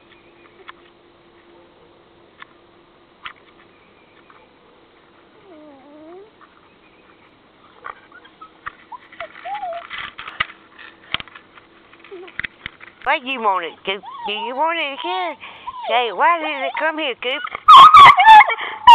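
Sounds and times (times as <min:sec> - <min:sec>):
animal whining: 0:05.4 - 0:06.4, 0:07.7 - 0:10.1, 0:13.6 - 0:18.9.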